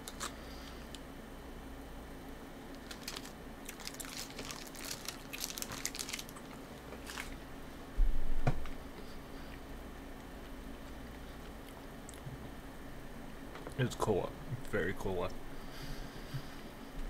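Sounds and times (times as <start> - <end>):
gum wrapper crinkling: 0.0 - 1.0, 2.7 - 7.4.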